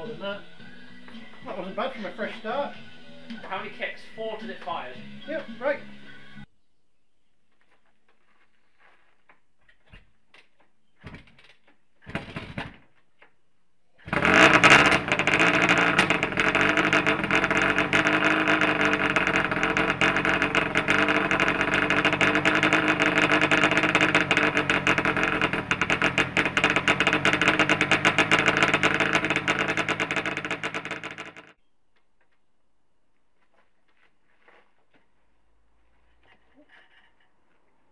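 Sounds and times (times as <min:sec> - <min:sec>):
engine kick-start kicks: 0:11.0 - 0:12.9, 0:14.1 - 0:31.6
two-stroke engine idling: 0:14.1 - 0:31.6.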